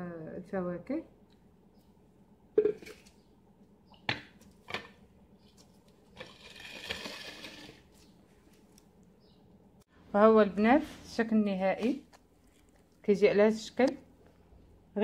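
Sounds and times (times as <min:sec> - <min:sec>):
objects scraping across countertop: 0:06.1 - 0:08.1.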